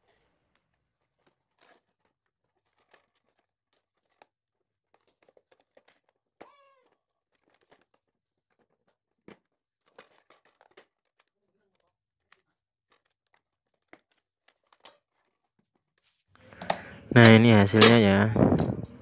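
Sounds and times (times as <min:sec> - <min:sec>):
rice cooker parts knocking: 0:16.6 - 0:19.0.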